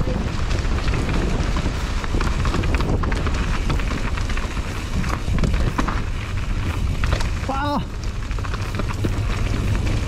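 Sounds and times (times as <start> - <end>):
tyres crunching over gravel: 0.0 - 10.0
wind rumble on microphone: 0.0 - 10.0.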